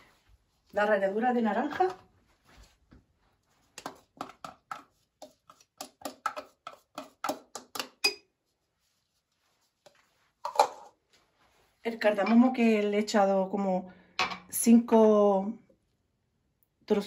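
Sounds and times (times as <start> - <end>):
spoon scraping a plastic tub: 3.7 - 8.3.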